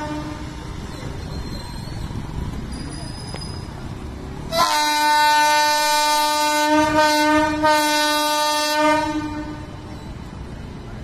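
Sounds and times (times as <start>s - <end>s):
train horn blast: 0.0s - 0.6s, 4.5s - 9.8s.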